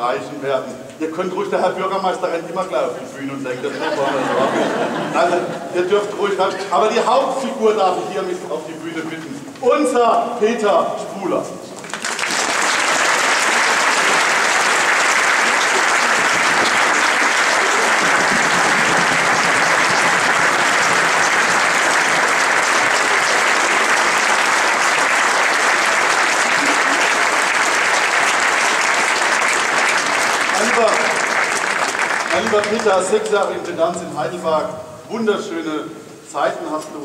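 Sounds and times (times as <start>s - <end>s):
audience applauding: 11.8s - 34.0s.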